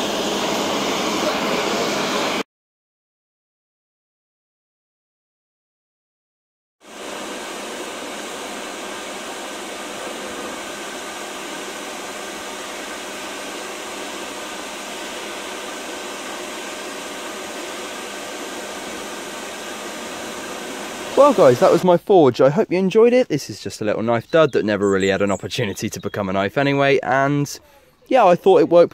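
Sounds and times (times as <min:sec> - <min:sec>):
hairdryer blowing air: 0:00.0 - 0:02.5, 0:06.8 - 0:21.8.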